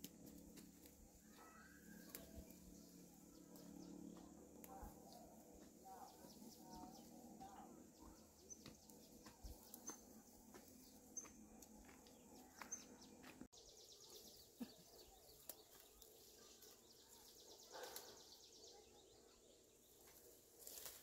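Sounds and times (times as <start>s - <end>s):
soft bird chirps: 5.9s - 20.8s.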